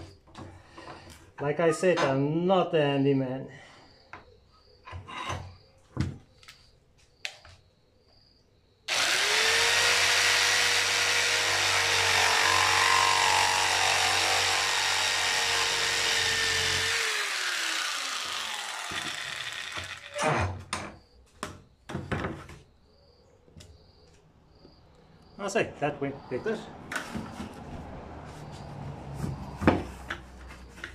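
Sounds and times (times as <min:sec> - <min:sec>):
jigsaw cutting plastic pipe: 0:08.9 - 0:20.6.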